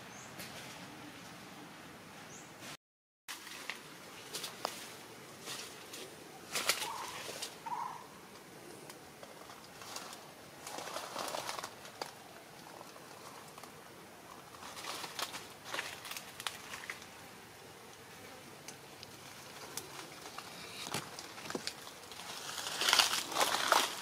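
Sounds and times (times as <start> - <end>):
rustling: 2.6 - 17.3, 17.9 - 24.0
parakeet calls: 6.8 - 8.1.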